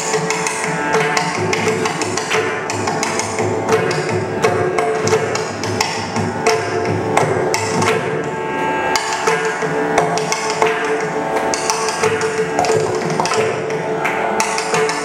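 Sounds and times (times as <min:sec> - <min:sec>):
barrel drums playing fast: 0:09.0 - 0:13.8.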